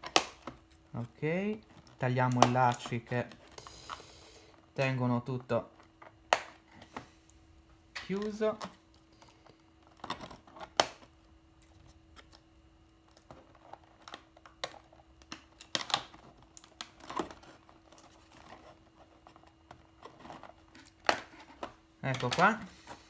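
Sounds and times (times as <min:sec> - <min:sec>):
cardboard and plastic handling: 0:08.0 - 0:23.0.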